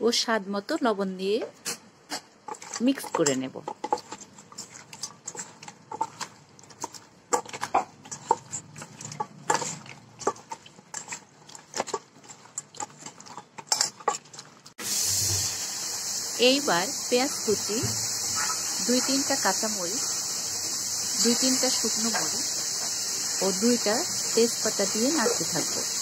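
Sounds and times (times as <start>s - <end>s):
wet squelches of hand mixing: 2.1s - 15.4s
steady hiss: 14.8s - 26.0s.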